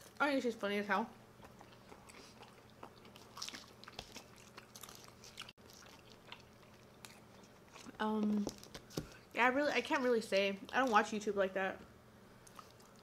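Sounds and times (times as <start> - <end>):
close-up chewing and biting: 1.4 - 9.2, 12.4 - 13.0.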